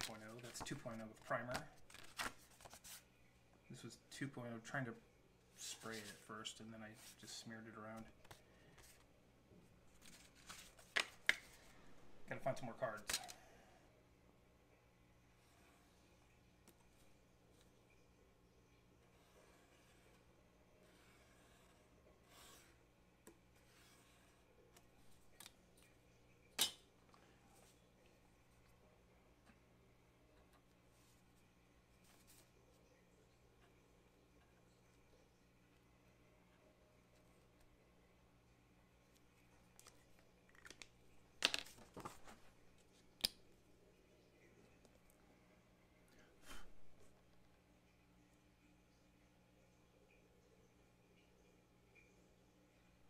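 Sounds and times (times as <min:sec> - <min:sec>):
paper cards rustling: 0:00.0 - 0:03.1, 0:05.6 - 0:06.3, 0:09.9 - 0:11.7, 0:39.9 - 0:43.1
small scrapes and ticks: 0:19.1 - 0:26.0
marker drawn along a ruler: 0:20.8 - 0:22.9, 0:23.6 - 0:24.5.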